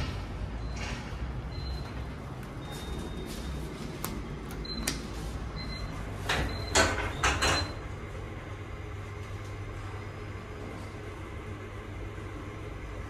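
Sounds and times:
steady low hum: 0.0s - 13.0s
lift doors clunking shut: 5.7s - 7.9s.

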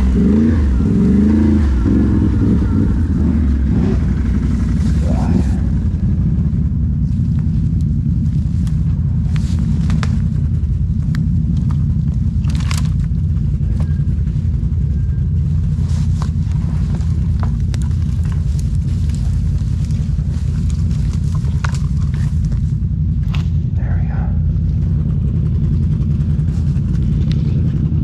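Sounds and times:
engine low rumble: 0.0s - 28.0s
small clicks and crackles: 7.0s - 14.4s, 15.7s - 23.6s.

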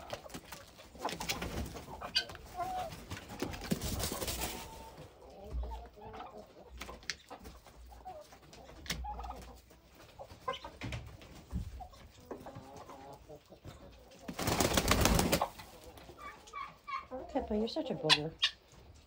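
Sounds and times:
hen wings flapping: 0.0s - 1.9s, 2.7s - 4.8s, 14.2s - 15.7s
chickens clucking: 0.0s - 19.0s.

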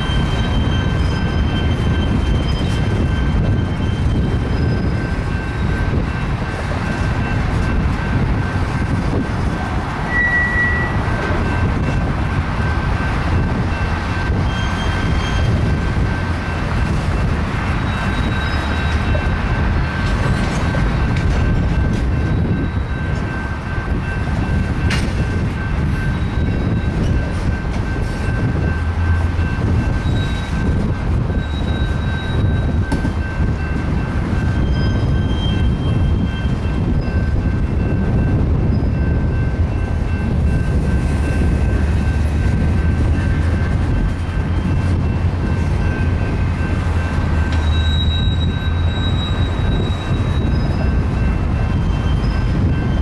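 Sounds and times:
high-pitched wheel squeals: 0.0s - 6.0s, 10.0s - 11.6s, 14.2s - 15.8s, 17.0s - 19.3s, 22.2s - 23.4s, 29.8s - 33.8s, 34.4s - 37.4s, 46.9s - 53.0s
steel wheels rumbling on rail: 0.0s - 53.0s.

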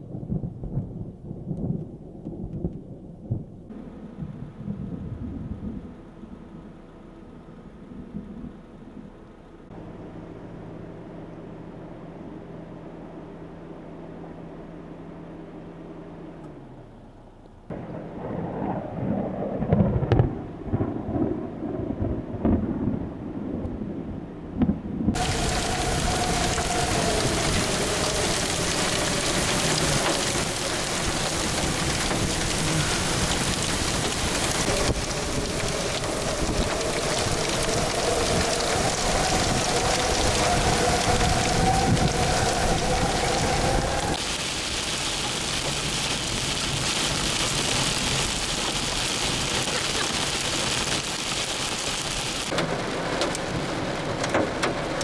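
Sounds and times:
strong wind gusts: 0.0s - 6.0s, 17.7s - 44.3s
low rumble: 0.0s - 50.4s
heavy rain rushing: 17.7s - 23.6s, 25.1s - 55.0s.

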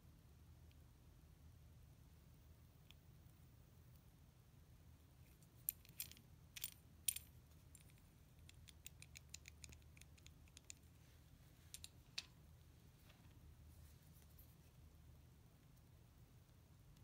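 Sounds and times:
faint metallic clicks and ticks: 5.3s - 11.0s, 11.6s - 12.4s.

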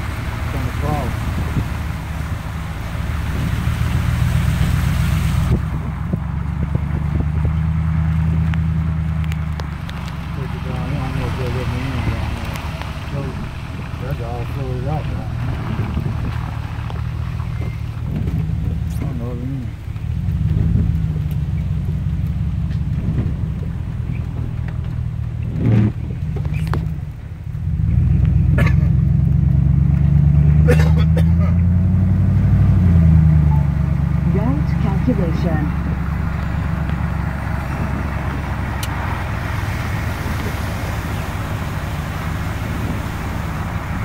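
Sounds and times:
car engine and road drone: 0.0s - 44.0s.

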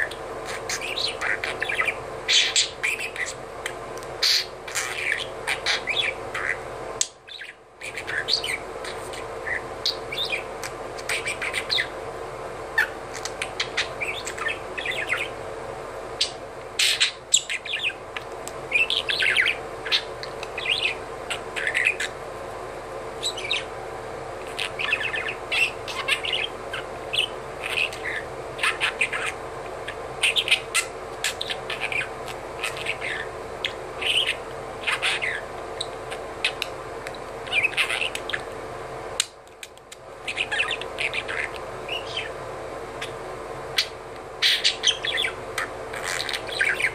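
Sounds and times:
budgerigar chirping and warbling: 0.0s - 3.4s, 4.2s - 6.6s, 7.3s - 12.0s, 12.8s - 15.4s, 16.2s - 18.0s, 18.7s - 22.2s, 23.2s - 23.7s, 24.5s - 36.7s, 37.4s - 38.5s, 40.2s - 42.4s, 43.8s - 46.9s
background hum: 0.0s - 46.9s.

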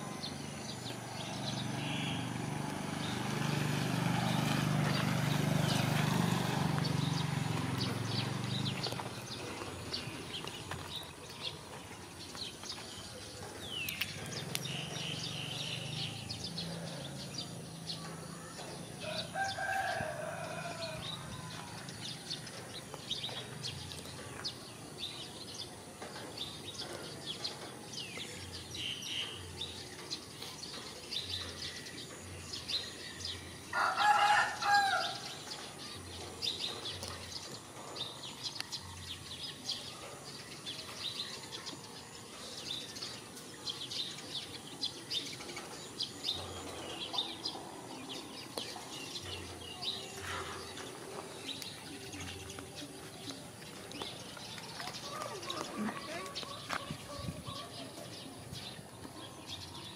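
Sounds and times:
small birds chirping: 0.0s - 59.9s
rooster crowing: 19.0s - 21.6s, 33.7s - 35.3s.

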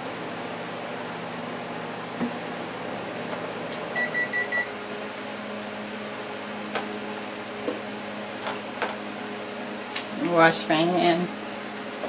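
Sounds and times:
microwave oven beeping: 3.9s - 4.9s.

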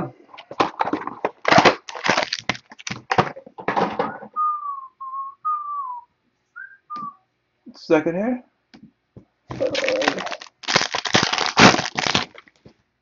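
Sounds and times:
packaging crinkling and crushing: 0.4s - 3.3s, 9.5s - 12.7s
person whistling short notes: 4.2s - 7.3s.

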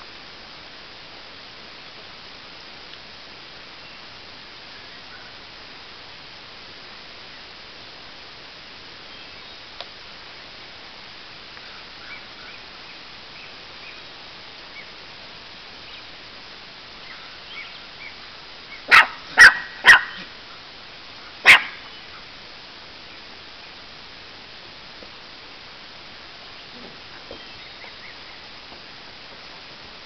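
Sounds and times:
puppy barking: 18.9s - 20.3s, 21.4s - 21.8s.

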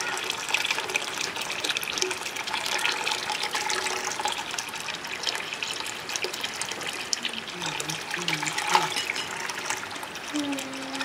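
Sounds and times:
water pouring into bucket: 0.0s - 11.0s.

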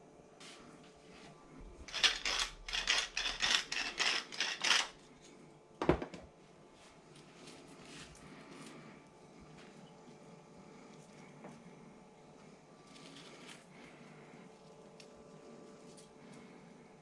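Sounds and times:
pepper mill grinding: 1.8s - 5.0s.

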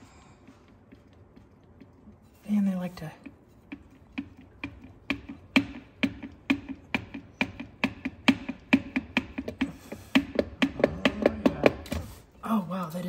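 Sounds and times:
rhythmic metallic clunks: 3.2s - 12.1s.

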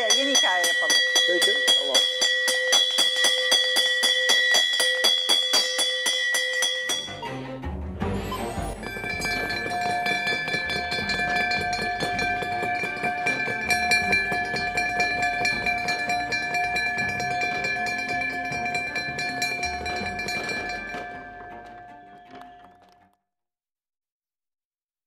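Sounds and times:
closing bell ringing: 0.0s - 7.2s.

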